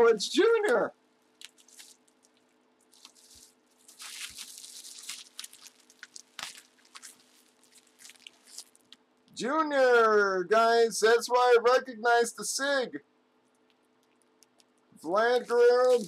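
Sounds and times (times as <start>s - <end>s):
faint steady hum: 0.0s - 16.0s
plastic wrapping crinkling: 1.2s - 9.0s, 15.4s - 16.0s.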